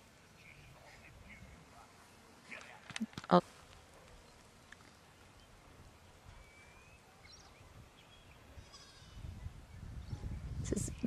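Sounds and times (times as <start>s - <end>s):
faint goat bleats: 8.6s - 9.3s.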